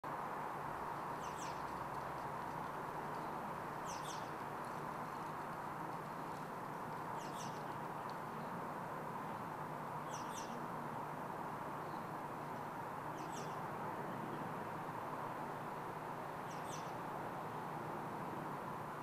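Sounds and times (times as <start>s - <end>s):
steady background hiss: 0.1s - 19.0s
small bird chirping: 1.2s - 1.8s, 3.2s - 4.4s, 7.1s - 8.5s, 10.0s - 10.6s, 13.2s - 13.6s, 16.4s - 17.0s.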